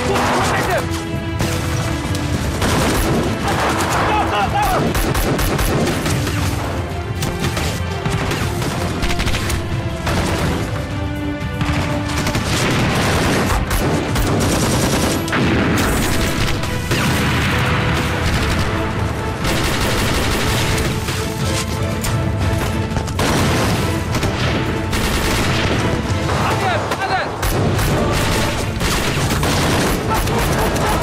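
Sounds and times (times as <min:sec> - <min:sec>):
tense dramatic music: 0:00.0 - 0:31.0
automatic rifle fire: 0:27.4 - 0:31.0.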